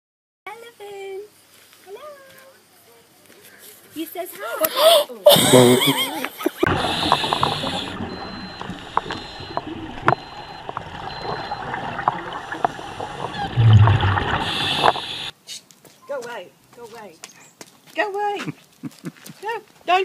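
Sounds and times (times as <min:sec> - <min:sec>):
diver breathing through regulator: 0:06.6 - 0:09.5, 0:12.3 - 0:15.3
exhaled bubbles rumbling: 0:06.6 - 0:15.3.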